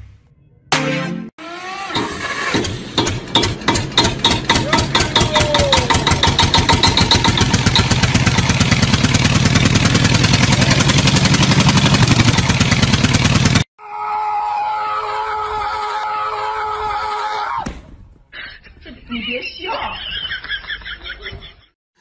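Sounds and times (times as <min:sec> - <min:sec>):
small engine running: 0:01.4 - 0:13.7.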